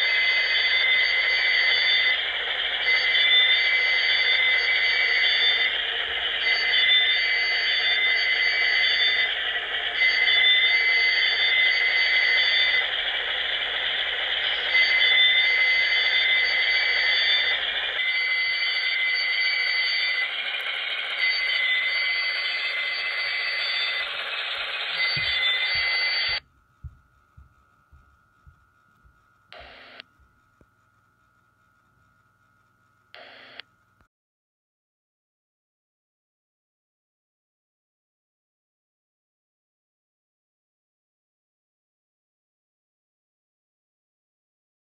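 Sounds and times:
model locomotive diesel engine sound: 0.0s - 26.4s
high tones: 14.7s - 26.4s.

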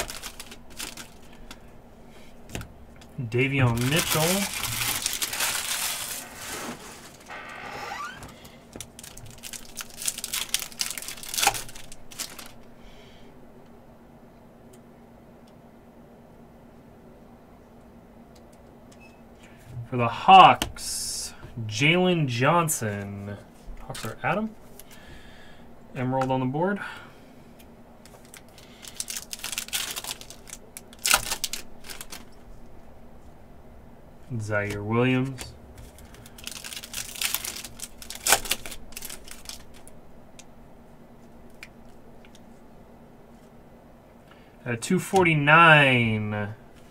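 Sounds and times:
foil wrapper crinkling and tearing: 0.0s - 1.6s, 3.4s - 12.7s, 28.1s - 32.3s, 35.8s - 39.9s.

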